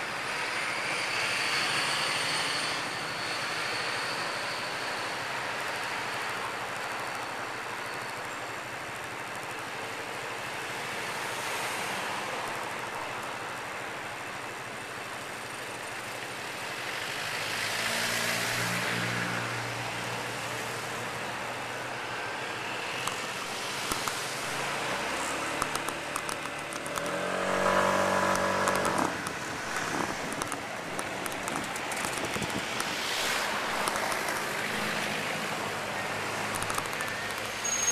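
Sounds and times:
city street traffic: 0:00.0 - 0:37.9
engine passing: 0:23.2 - 0:36.6
louder engine pulling away: 0:24.5 - 0:30.3.

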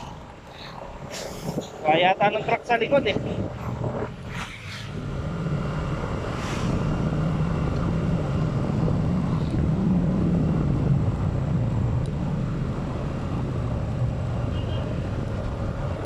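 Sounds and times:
vehicle engine drone: 0:00.0 - 0:16.0
wind rushing over microphone: 0:00.0 - 0:16.0.

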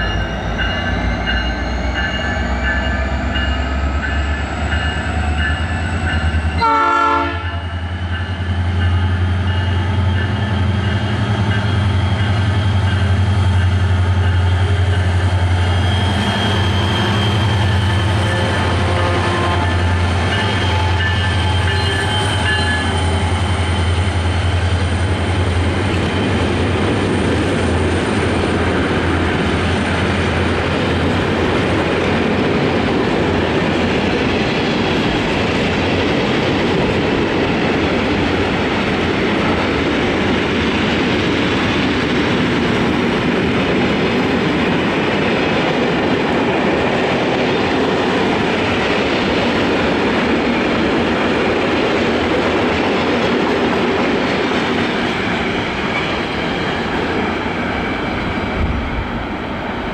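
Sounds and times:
diesel locomotive drone: 0:00.0 - 0:59.9
train wheels rumbling on rails: 0:00.0 - 0:59.9
clickety-clack over rail joints: 0:16.4 - 0:59.6.

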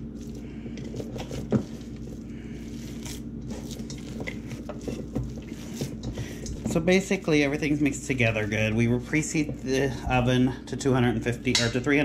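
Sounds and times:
hands squelching raw meat: 0:00.0 - 0:06.7.

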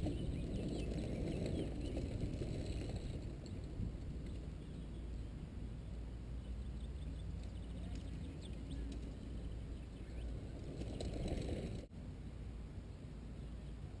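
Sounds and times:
bike tyres on dirt trail: 0:00.0 - 0:11.9
steady low rumble: 0:00.0 - 0:14.0.

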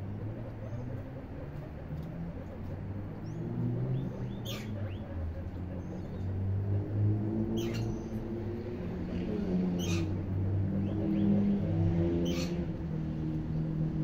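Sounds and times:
guinea pigs squeaking: 0:00.0 - 0:06.4, 0:07.5 - 0:08.2, 0:09.6 - 0:11.5, 0:12.2 - 0:12.8.

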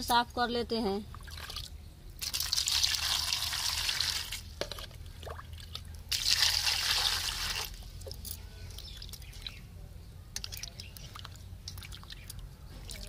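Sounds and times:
small water splashes: 0:01.1 - 0:07.8, 0:10.4 - 0:13.0
water pouring into steel basin: 0:01.3 - 0:04.5, 0:05.4 - 0:07.8.

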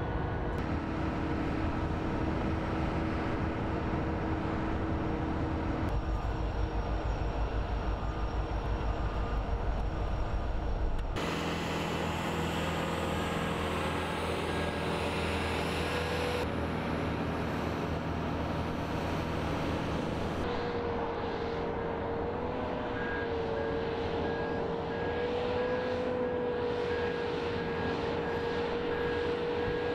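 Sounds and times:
diesel locomotive idling hum: 0:00.0 - 0:20.5
steady whine: 0:00.0 - 0:29.9.

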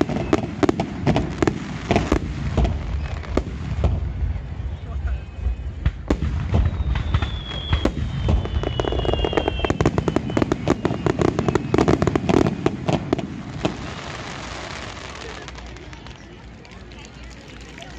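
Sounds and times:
firework whistle: 0:00.0 - 0:00.9, 0:02.9 - 0:15.2
fireworks bangs and crackles: 0:00.0 - 0:17.9.

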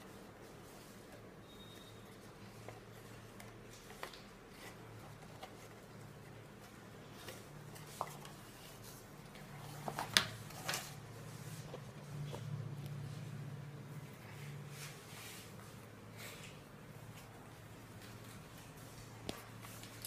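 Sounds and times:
low steady hum: 0:00.0 - 0:20.0
paper rustling: 0:02.0 - 0:12.6.

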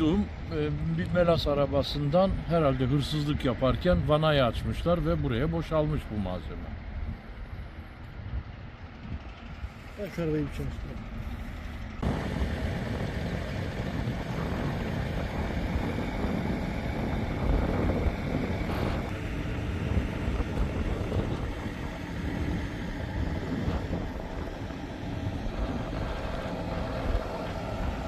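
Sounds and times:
wind rumbling on microphone: 0:00.0 - 0:28.0
vehicle engine running: 0:06.7 - 0:28.0.

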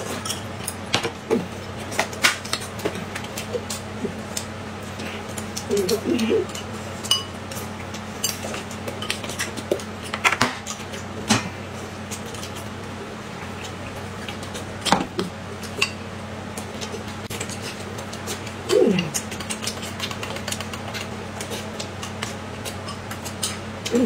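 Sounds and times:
steady low hum: 0:00.0 - 0:24.0
spoons clinking against glass: 0:07.1 - 0:07.3.

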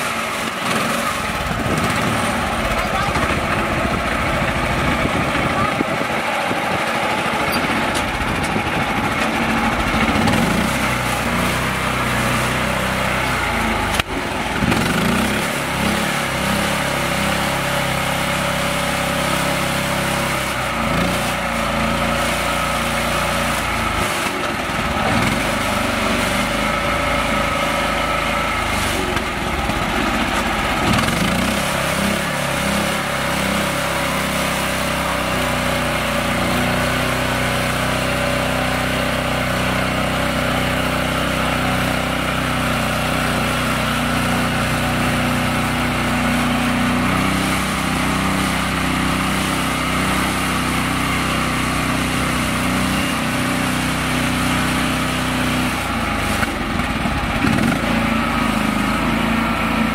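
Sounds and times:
small tractor engine revving: 0:00.0 - 0:59.9.

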